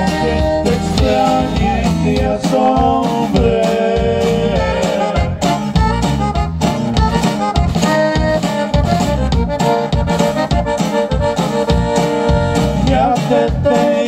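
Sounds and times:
accordion chords: 0.0s - 14.0s
drum kit beat: 0.0s - 14.0s
guitar: 0.0s - 14.0s.

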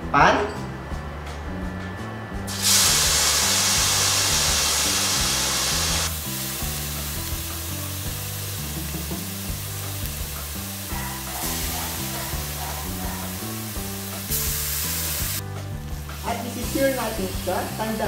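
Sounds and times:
background music: 0.0s - 18.0s
meat sizzling in a pan: 2.5s - 18.0s.

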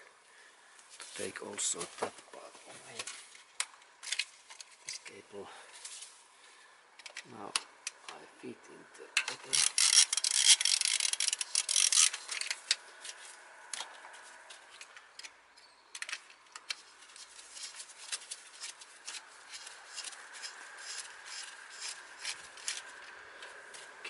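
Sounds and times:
ratchet wrench clicking: 9.2s - 12.6s.

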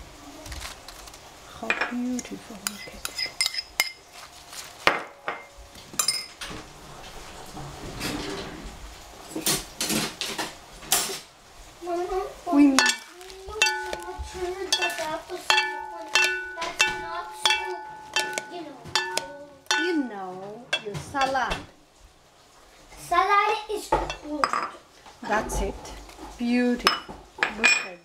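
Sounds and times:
salad servers knocking ceramic bowl: 12.8s - 21.7s.

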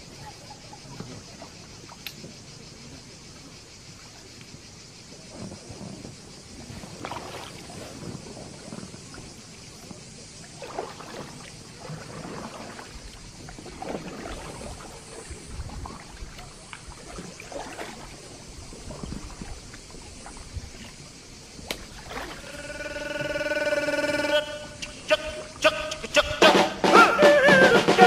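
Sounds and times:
paddle splashing in water: 0.0s - 2.4s, 5.1s - 28.0s
music: 23.8s - 28.0s.

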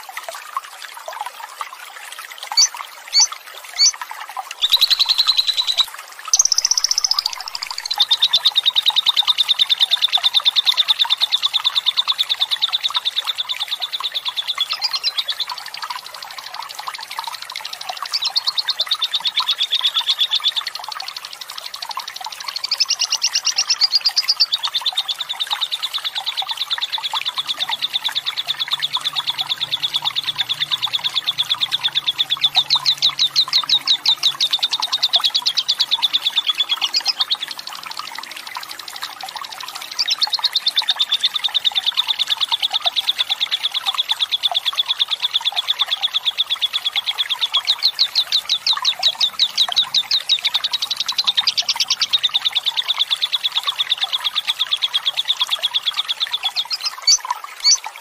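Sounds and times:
running water: 0.0s - 58.0s
lovebird chattering trill: 2.5s - 4.0s, 4.6s - 5.8s, 6.4s - 8.6s, 14.6s - 15.2s, 22.5s - 24.7s, 27.0s - 37.4s, 56.5s - 57.8s.

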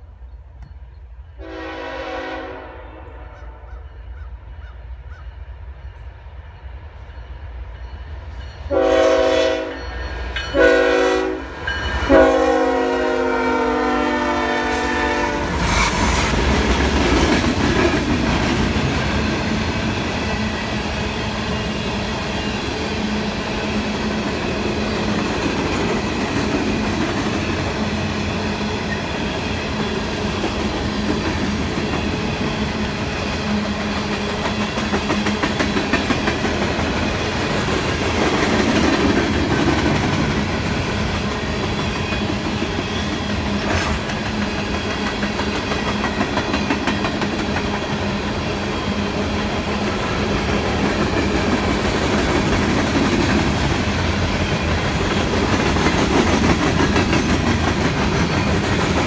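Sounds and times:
locomotive air horn blasts: 1.4s - 3.6s, 8.7s - 9.8s, 10.5s - 11.5s, 12.1s - 16.2s
train wheels rumbling on rail: 3.7s - 59.0s.

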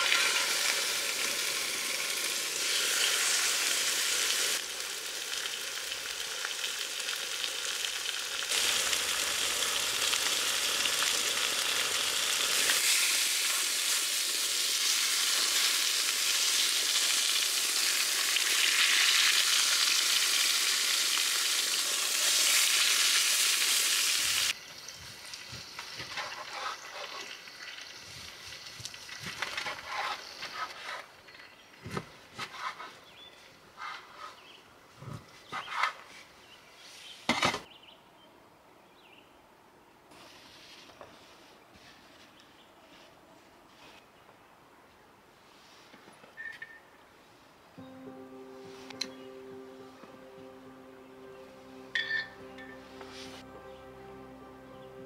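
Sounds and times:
steaks sizzling in frying pan: 0.0s - 24.6s.

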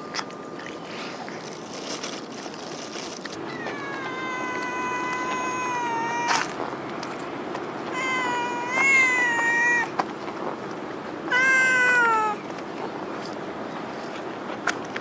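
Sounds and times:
cat meowing loudly: 3.4s - 6.6s, 7.9s - 10.0s, 11.3s - 12.4s.

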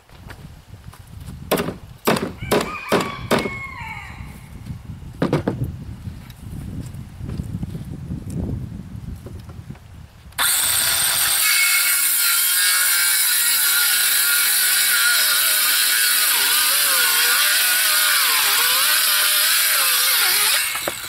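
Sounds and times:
circular saw cutting board: 10.4s - 21.0s.

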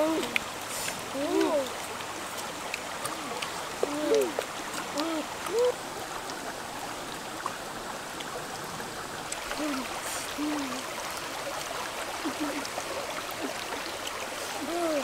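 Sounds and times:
water rushing over rocks: 0.0s - 15.0s
short voice sounds: 5.0s - 5.8s.

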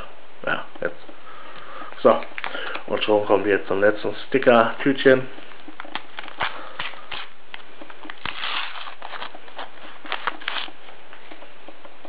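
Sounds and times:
foil packet crinkling: 2.0s - 3.3s, 4.8s - 10.9s
foil packet ripping: 5.8s - 10.8s.

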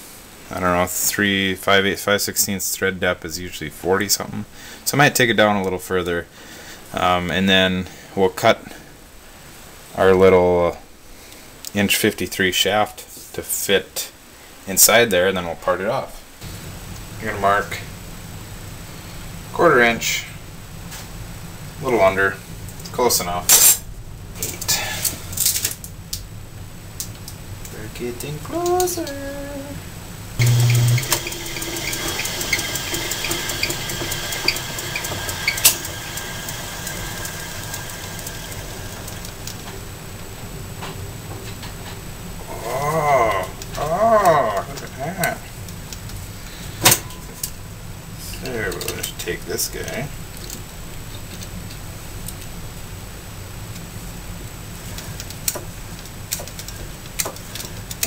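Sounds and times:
metal lathe running: 30.4s - 39.5s
light regular ticking: 30.4s - 39.7s.

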